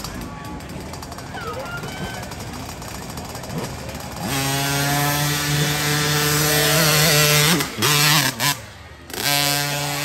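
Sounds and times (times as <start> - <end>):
dirt bike engine revving: 2.2 - 10.0.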